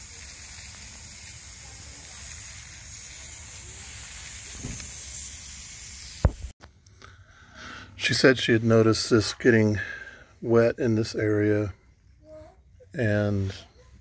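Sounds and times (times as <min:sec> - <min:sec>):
sprinkler spraying water: 0:00.0 - 0:06.5
short thump: 0:04.6 - 0:05.0.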